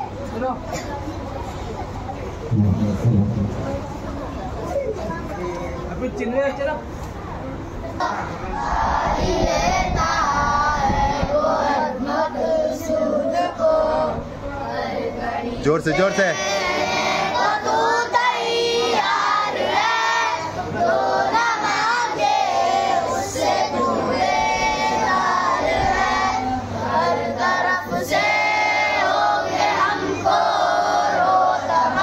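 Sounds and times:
children and adults singing in chorus: 0:07.9 - 0:32.0.

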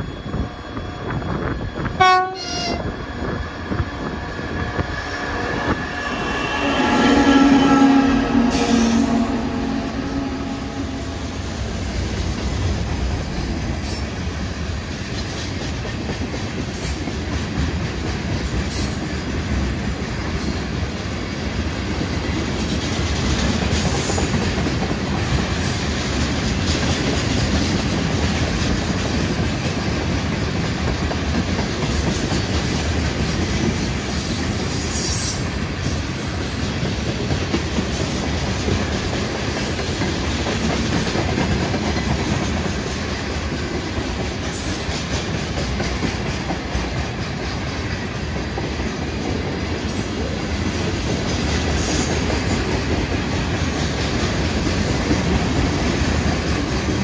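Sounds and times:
train wheels rumbling on rails: 0:00.0 - 0:57.0
high-pitched wheel squeals: 0:04.5 - 0:11.4.

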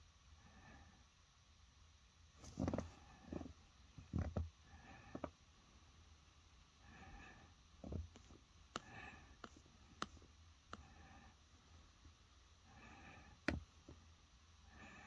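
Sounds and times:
finger tapping phone touchscreen: 0:08.2 - 0:10.9.

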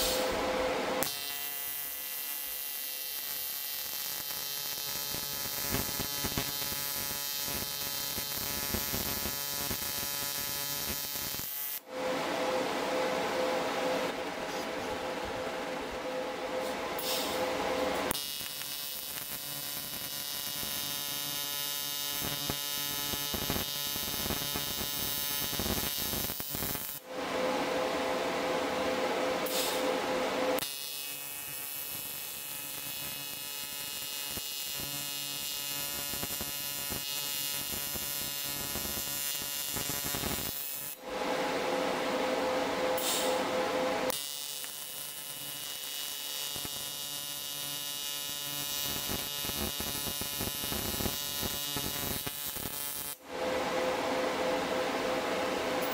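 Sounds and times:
welding arc buzzing: 0:00.0 - 0:11.8, 0:16.6 - 0:27.0, 0:29.4 - 0:41.0, 0:43.0 - 0:53.2.

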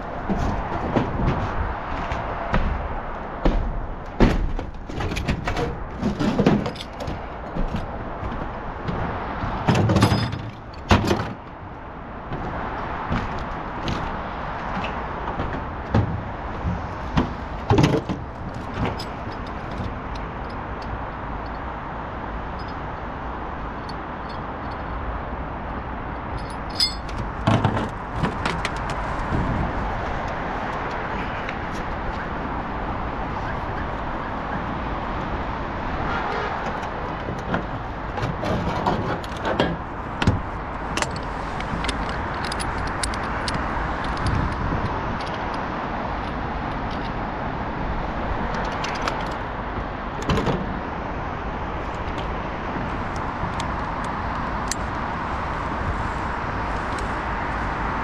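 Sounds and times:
outdoor background noise: 0:00.0 - 0:58.0
sharp knocks and clatters: 0:00.2 - 0:11.6, 0:12.2 - 0:20.6, 0:26.4 - 0:31.9
metallic clink: 0:26.4 - 0:27.2.

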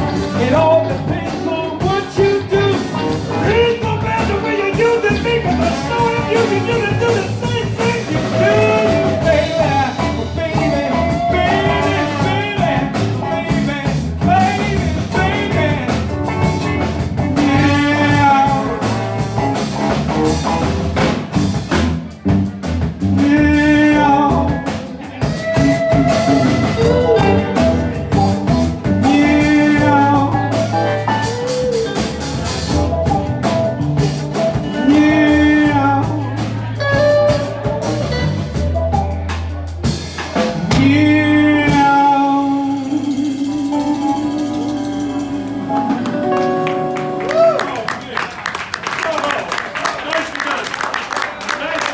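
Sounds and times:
trombone sliding phrases: 0:00.0 - 0:20.7, 0:25.2 - 0:33.0, 0:34.6 - 0:39.0
blues band playing: 0:00.0 - 0:51.9.

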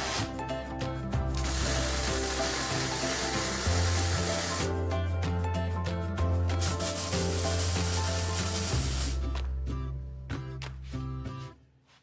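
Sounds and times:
background music with ticking rhythm: 0:00.0 - 0:12.0
welding crackling hiss: 0:01.4 - 0:04.7, 0:06.6 - 0:09.3.

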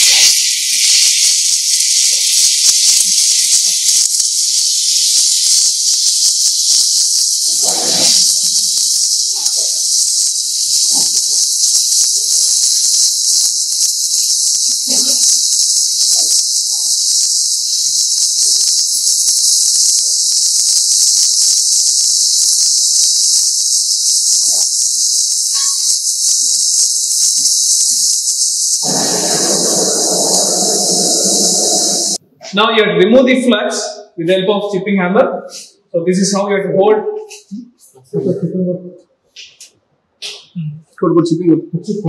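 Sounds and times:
crackle of sparks and spatter: 0:00.0 - 0:32.2
welding torch flame hissing: 0:00.0 - 0:32.6, 0:35.4 - 0:36.4
low loud sound: 0:28.8 - 0:32.6.

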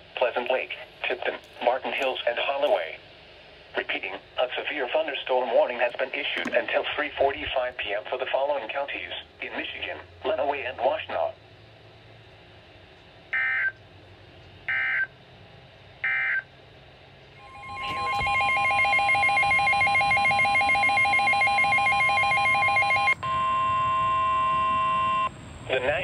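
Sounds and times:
short data-tone blips: 0:17.4 - 0:25.3
steady alarm tone with flutter: 0:17.4 - 0:26.0.

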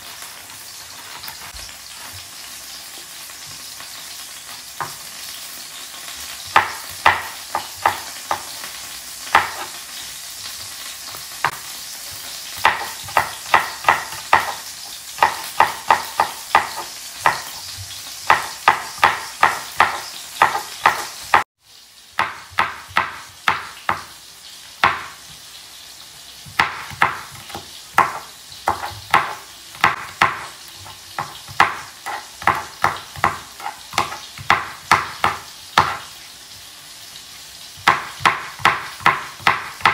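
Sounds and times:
knife chopping on cutting board: 0:04.8 - 0:05.1, 0:06.4 - 0:21.5, 0:22.2 - 0:24.2, 0:24.8 - 0:25.4, 0:26.4 - 0:36.1, 0:37.8 - 0:39.9.

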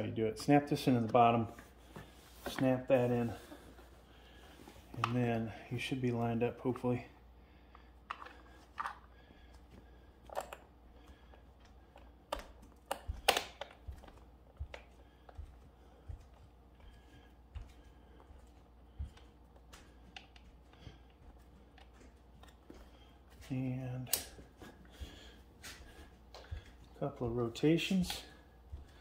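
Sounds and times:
plastic pieces snapping into place: 0:12.3 - 0:14.8.

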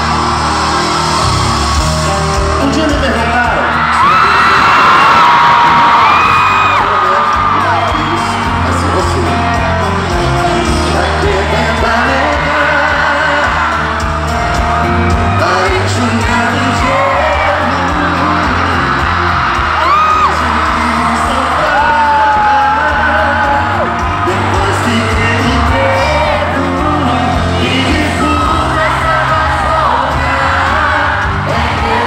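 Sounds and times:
crowd screaming and whooping: 0:00.0 - 0:32.0
live band playing loud: 0:00.0 - 0:32.0
person singing: 0:05.6 - 0:14.2, 0:15.0 - 0:32.0.

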